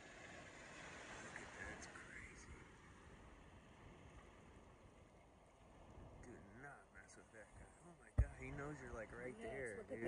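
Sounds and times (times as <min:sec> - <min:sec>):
faint ocean surf: 0:00.0 - 0:10.0.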